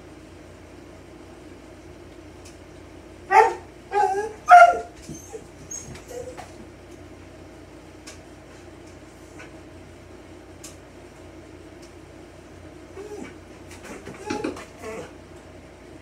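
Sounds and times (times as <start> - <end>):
steady low hum: 0.0 - 16.0
dog barking: 3.3 - 4.9.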